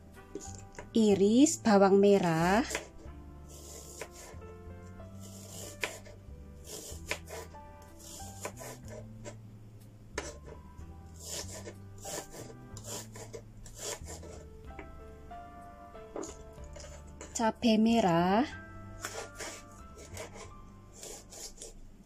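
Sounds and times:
knife chopping on wooden board: 0:02.6 - 0:03.0, 0:03.6 - 0:04.4, 0:05.3 - 0:09.1, 0:11.2 - 0:14.9, 0:19.0 - 0:21.7.

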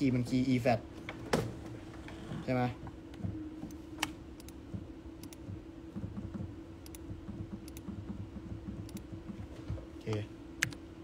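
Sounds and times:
steady low hum: 0:00.0 - 0:11.0
computer keyboard clicking: 0:07.6 - 0:08.0.

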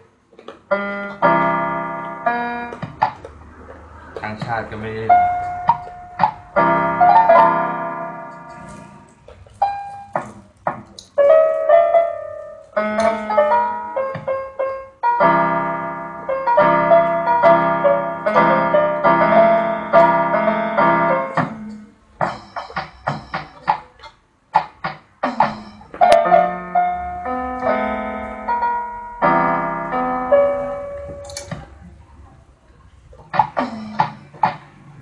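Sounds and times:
stray keyboard notes: 0:00.0 - 0:31.8
electronic keyboard piano chords: 0:00.0 - 0:35.0.

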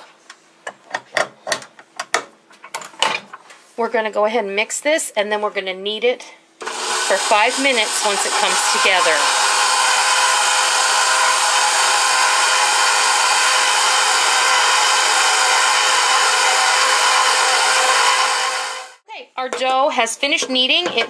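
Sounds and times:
stand mixer motor whining: 0:06.6 - 0:19.0.

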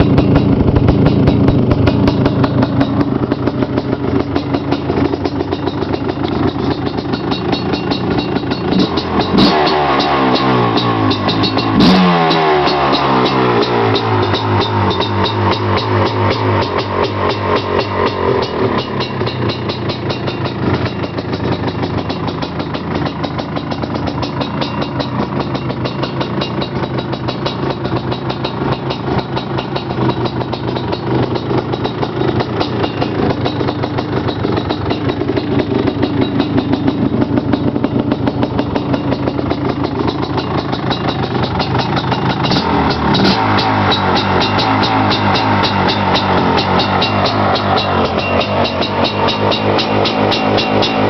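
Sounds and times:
two-stroke engine running: 0:00.0 - 0:51.0.

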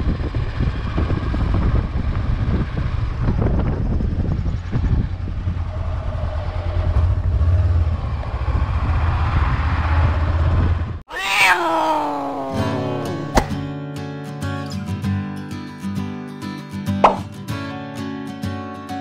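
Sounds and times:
motorcycle engine and wind rumble: 0:00.0 - 0:11.0
long falling tone: 0:11.1 - 0:13.7
acoustic guitar music: 0:12.5 - 0:19.0.

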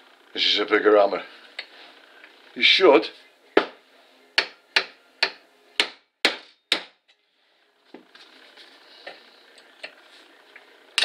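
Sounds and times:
hammer striking steel punch: 0:04.4 - 0:07.0
faint handling sounds: 0:07.2 - 0:10.8.

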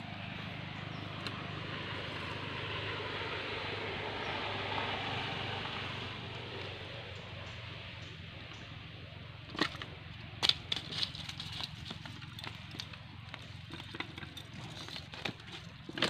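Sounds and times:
net clicks and rustles: 0:09.5 - 0:16.0.

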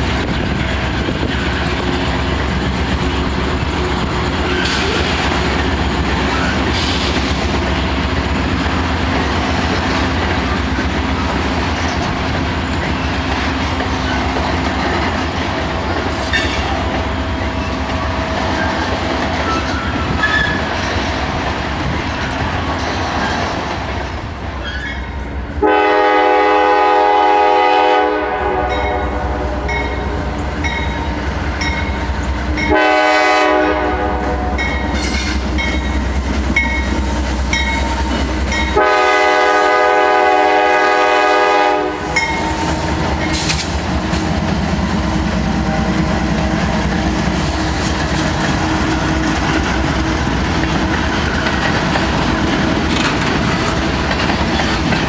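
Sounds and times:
train rumbling on track: 0:00.0 - 0:55.0
locomotive air horn: 0:25.6 - 0:30.4, 0:32.6 - 0:35.4, 0:38.1 - 0:42.8
wheels clicking over rails: 0:43.0 - 0:55.0.

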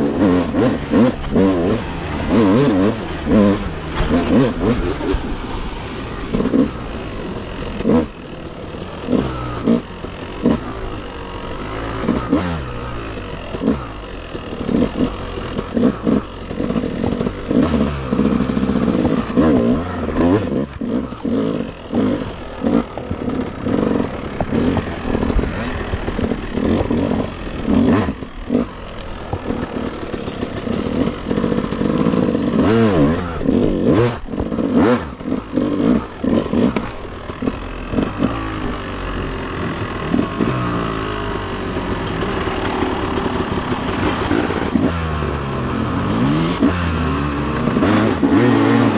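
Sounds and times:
dirt bike engine revving: 0:00.0 - 0:48.9
sharp knocks from bumps: 0:02.3 - 0:05.4.

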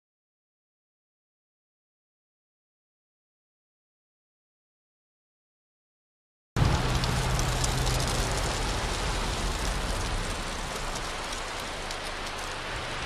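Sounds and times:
car road and wind noise: 0:06.6 - 0:13.0.

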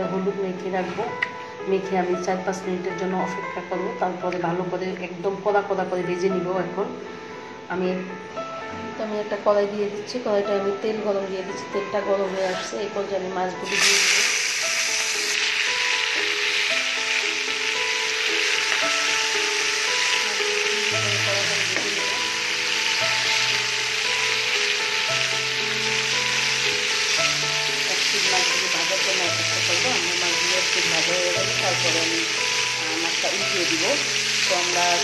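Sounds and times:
soft background music: 0:00.0 - 0:35.0
fish sizzling in hot oil: 0:13.6 - 0:35.0.

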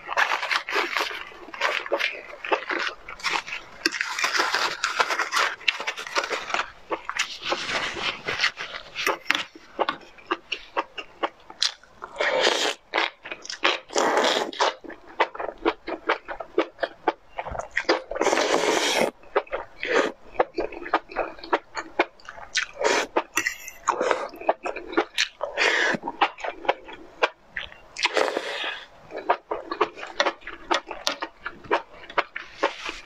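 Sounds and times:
wet chewing and mouth clicks: 0:00.0 - 0:33.0
slurping: 0:12.0 - 0:15.5, 0:17.3 - 0:33.0.

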